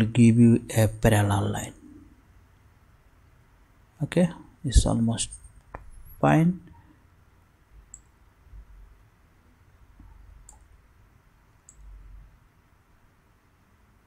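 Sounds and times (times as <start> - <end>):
computer mouse clicks: 7.9 - 8.1, 10.0 - 10.8, 11.6 - 12.0.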